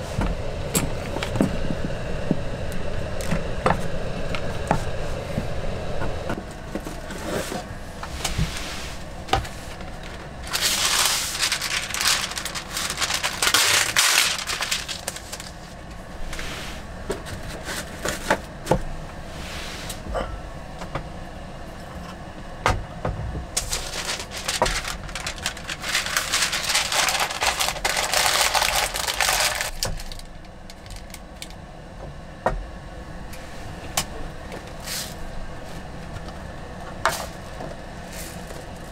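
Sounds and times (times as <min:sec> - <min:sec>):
steady hissing noise: 0:00.0 - 0:18.0, 0:23.5 - 0:31.6.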